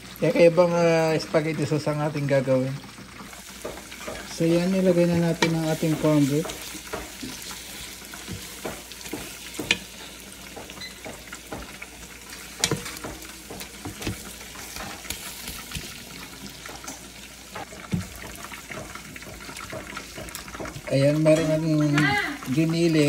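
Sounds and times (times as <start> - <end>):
meat sizzling in a pot: 0.0 - 23.0
wooden spoon stirring and scraping: 3.3 - 23.0
spoon knocking on pot: 3.5 - 22.2.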